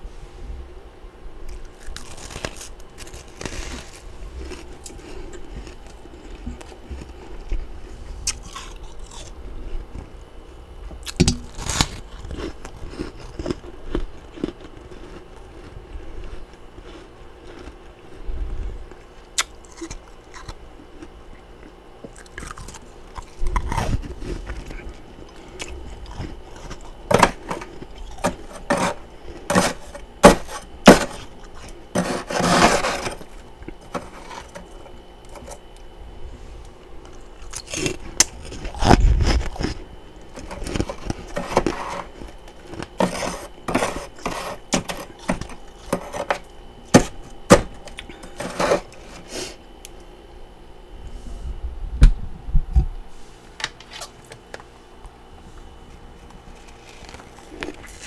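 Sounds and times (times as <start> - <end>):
frost crunching: 1.5 - 10.1, 11.0 - 18.2, 18.8 - 36.0, 36.6 - 49.5
metal spoon scraping frost: 26.2 - 35.6, 40.4 - 47.1, 48.0 - 49.6.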